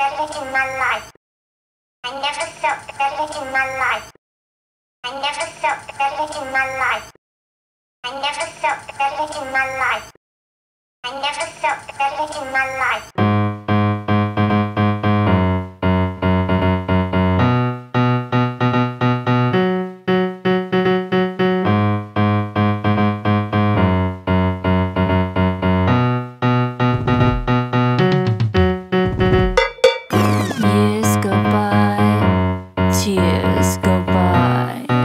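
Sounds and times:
repeated keyboard chords: 13.2 - 35.0.

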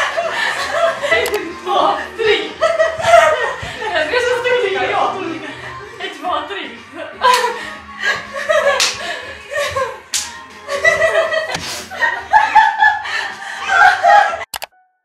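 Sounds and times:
women laughing and shrieking: 0.0 - 5.8, 7.0 - 10.0, 10.7 - 14.5
sharp slaps: 8.8 - 9.0, 10.1 - 10.4.

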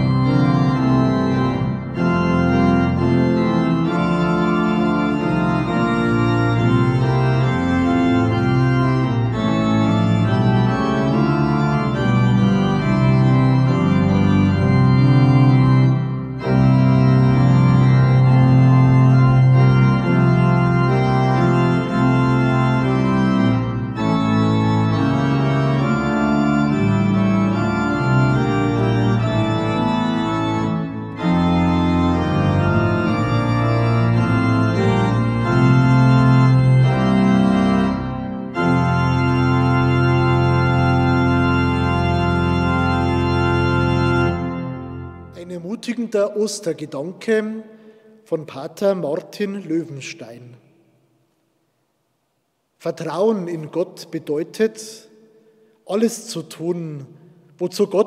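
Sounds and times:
pipe organ playing chords: 0.0 - 50.9, 52.8 - 58.0.

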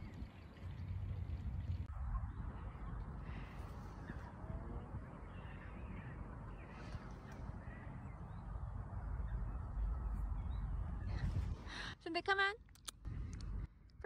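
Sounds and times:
wind rumble on microphone: 0.0 - 12.0, 13.0 - 14.0
distant birds calling: 1.9 - 11.9.

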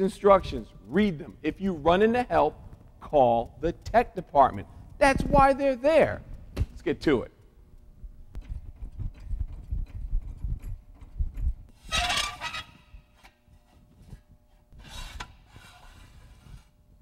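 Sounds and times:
metal scraping on concrete: 11.8 - 13.9, 14.8 - 16.8.

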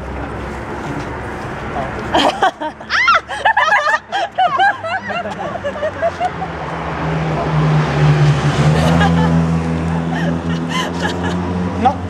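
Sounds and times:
car engine humming: 0.0 - 12.0
laughter: 2.1 - 6.5, 8.8 - 11.5
excited voices: 2.8 - 6.5.

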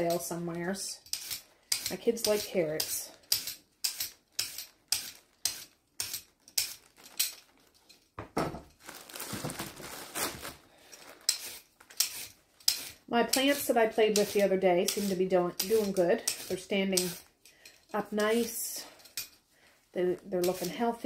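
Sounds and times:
peeler scraping carrot: 0.0 - 7.4, 11.2 - 19.4, 20.0 - 21.0.

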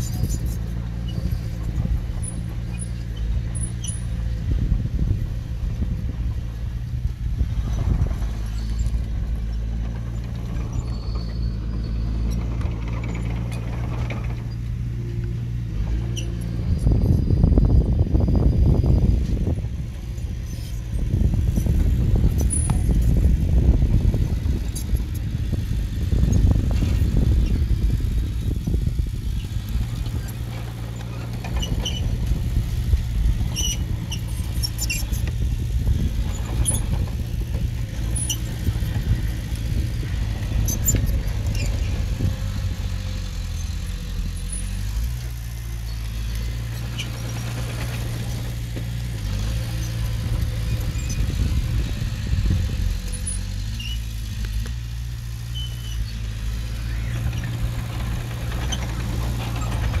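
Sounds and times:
metallic squeaks and clinks: 0.0 - 1.6, 10.6 - 14.6, 33.5 - 35.3, 36.3 - 37.0, 55.5 - 56.3
diesel engine running: 0.0 - 60.0.

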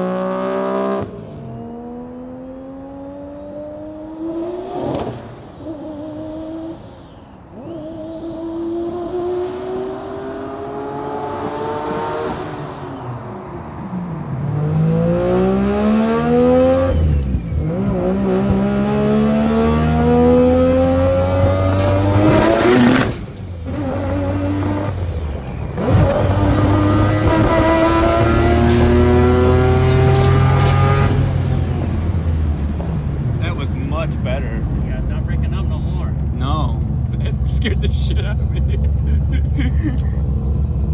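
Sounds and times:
rotary engine revving: 7.6 - 32.9.

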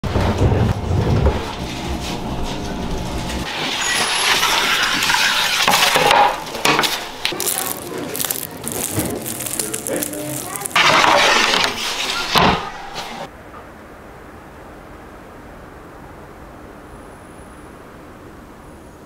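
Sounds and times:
wood fire burning in oven: 0.0 - 13.3
peel scraping oven floor: 0.1 - 13.2
croissant crackling as torn: 6.7 - 11.9.

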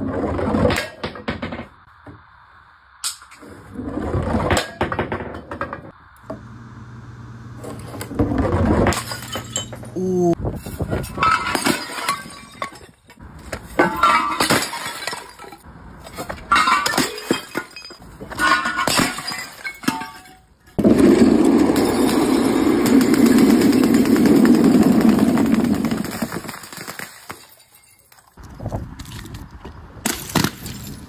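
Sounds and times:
glass and porcelain smashing: 8.8 - 9.9, 11.0 - 22.7, 27.1 - 28.4
shards clinking: 9.0 - 10.0, 10.6 - 20.8.

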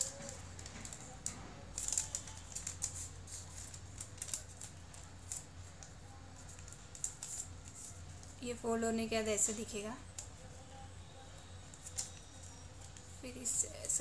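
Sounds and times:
paper rustling and crackling: 0.0 - 8.4, 11.6 - 14.0.

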